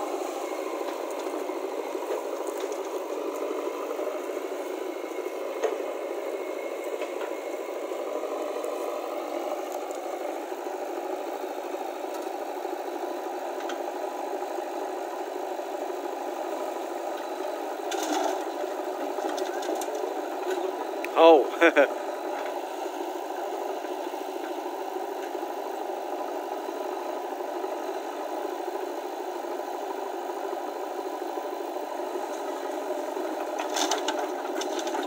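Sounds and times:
motor running with a rattle: 0.0s - 15.0s, 15.6s - 21.0s, 29.5s - 35.0s.

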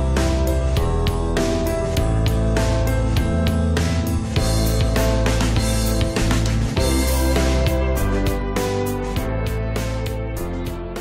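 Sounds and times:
music with repeated beat: 0.0s - 11.0s.

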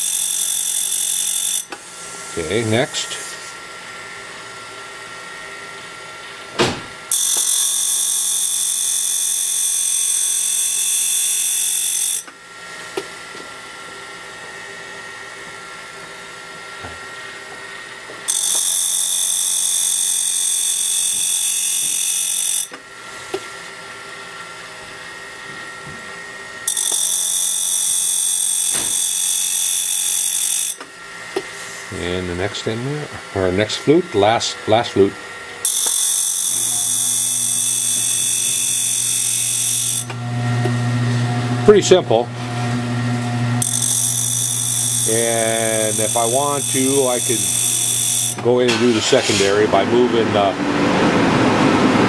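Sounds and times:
grinding wheel high-pitched hiss: 0.0s - 3.4s, 18.3s - 22.8s, 26.6s - 30.9s, 31.6s - 40.2s, 43.6s - 49.7s
grinding wheel humming: 25.0s - 52.0s.

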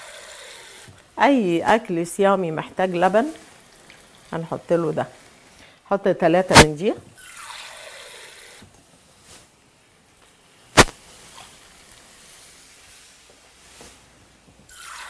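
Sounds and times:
water running at sink: 2.4s - 5.6s
sharp knock: 10.8s - 11.0s.

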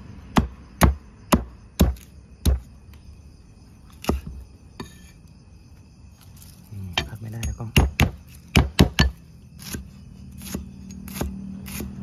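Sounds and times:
cleaver chopping on wooden block: 0.3s - 2.7s, 7.4s - 9.8s, 10.4s - 12.0s.

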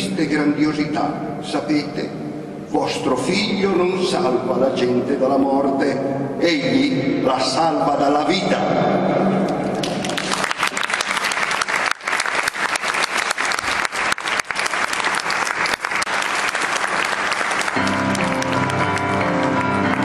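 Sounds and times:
audience applauding: 9.7s - 20.0s
grand piano playing: 17.0s - 20.0s.

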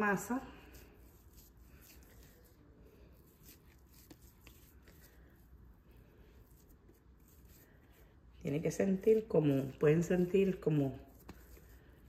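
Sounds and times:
hands kneading dough: 0.0s - 12.0s.

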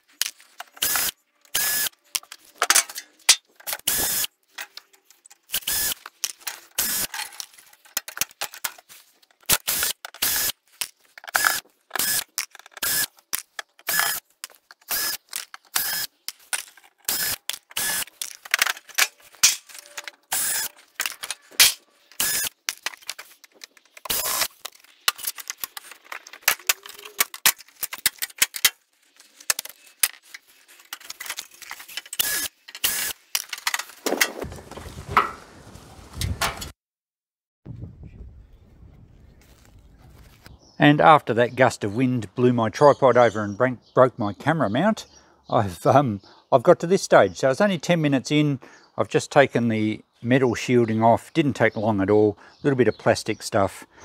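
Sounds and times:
power screwdriver rapid clicking: 0.8s - 1.9s, 3.7s - 4.3s, 5.5s - 6.0s, 6.8s - 7.1s, 9.5s - 10.6s, 11.3s - 13.2s, 13.8s - 14.2s, 14.8s - 16.1s, 17.1s - 18.1s, 20.3s - 21.2s, 22.2s - 22.6s, 24.0s - 24.6s, 32.2s - 33.2s.

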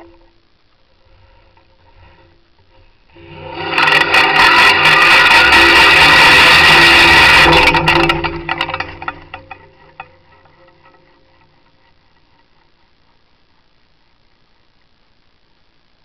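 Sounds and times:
pulley whirring rattle on cable: 1.1s - 13.3s.

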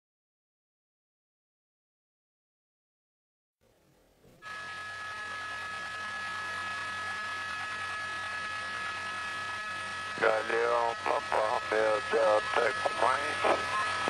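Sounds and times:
radio static hiss: 6.3s - 14.0s.

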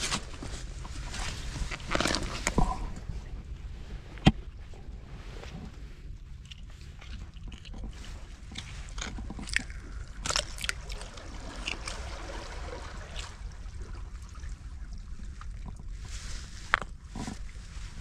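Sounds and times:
low steady rumble: 0.0s - 18.0s
wet scraping of shell: 1.6s - 2.8s.

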